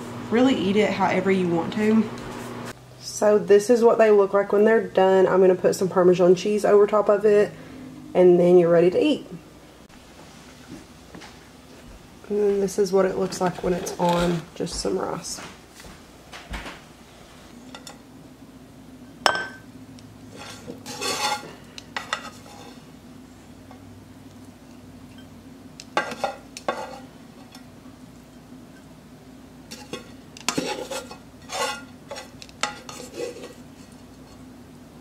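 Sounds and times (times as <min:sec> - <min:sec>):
steady low hum: 0:00.0 - 0:35.0
metal tongs scraping skillet: 0:20.3 - 0:22.9, 0:26.0 - 0:27.7, 0:29.7 - 0:34.4.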